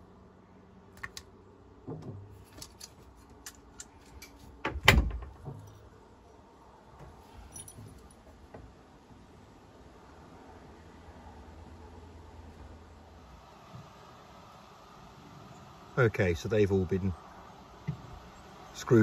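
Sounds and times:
light metallic clicks and clinks: 7.3 - 8.4.

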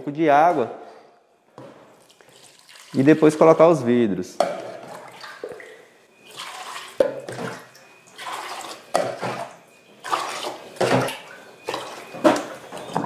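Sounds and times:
water pouring and splashing: 2.0 - 3.6, 4.8 - 13.0.

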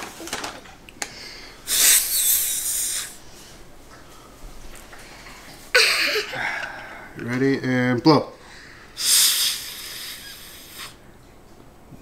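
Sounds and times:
child blowing nose: 1.7 - 3.2, 9.0 - 11.0.

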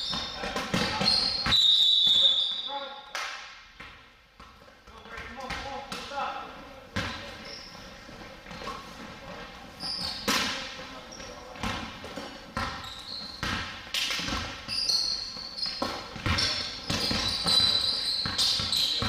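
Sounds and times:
basketball bouncing on wooden floor: 0.0 - 1.6, 11.6 - 19.0
sneaker squeaks: 0.0 - 3.0, 6.9 - 19.0.

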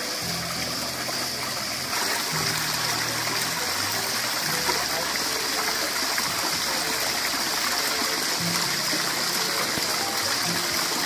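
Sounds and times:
water splashing over stone: 0.0 - 11.0.

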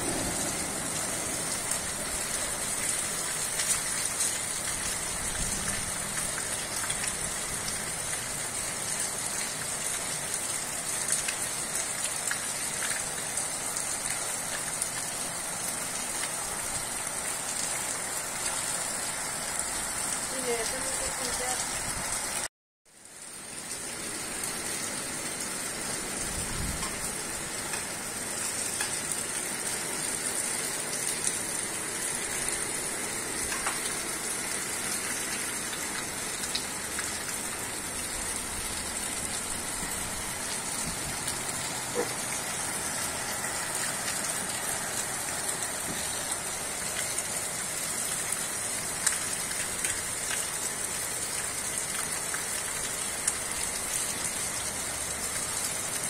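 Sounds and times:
steady rain falling: 0.0 - 56.0.

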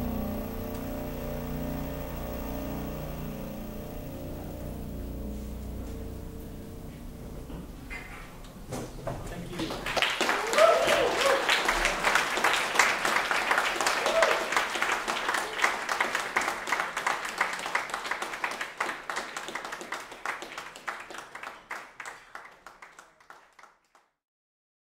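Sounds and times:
audience applauding: 9.4 - 24.1
audience cheering: 9.6 - 23.7.

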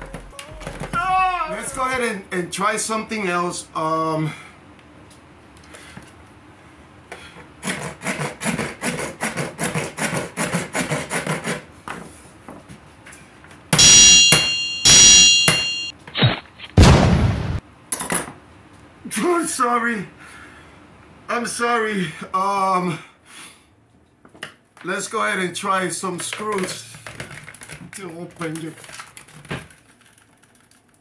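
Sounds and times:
loud bangs with ringing tone: 13.8 - 15.9.

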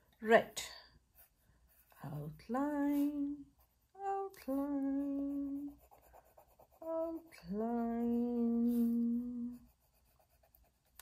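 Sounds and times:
woman humming a slow tune: 4.0 - 5.8, 6.8 - 9.7.

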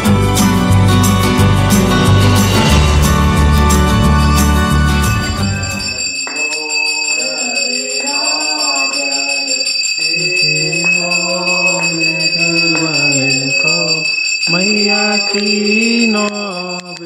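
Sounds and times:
background music: 0.0 - 6.1
hand bell ringing: 0.0 - 17.0
person singing devotional song: 5.8 - 17.0.

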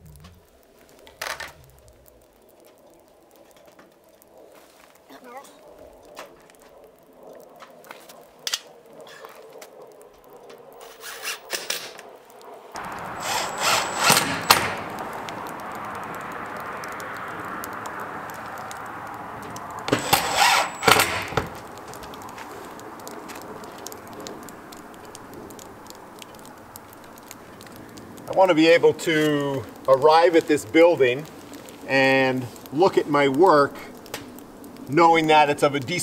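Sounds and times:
drill driving screws into metal: 13.2 - 14.9, 19.9 - 21.5.

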